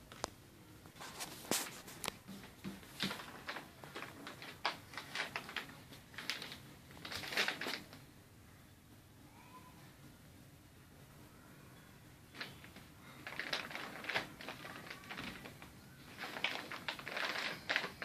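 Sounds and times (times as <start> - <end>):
plastic bag crinkling: 1.0 - 8.0, 12.3 - 18.0.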